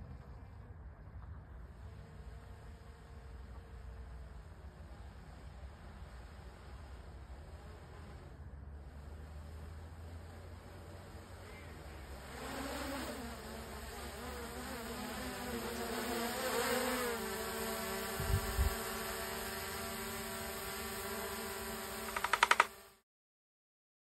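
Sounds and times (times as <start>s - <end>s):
drone propellers buzzing: 1.4s - 23.0s
rapid ticks: 21.8s - 22.9s.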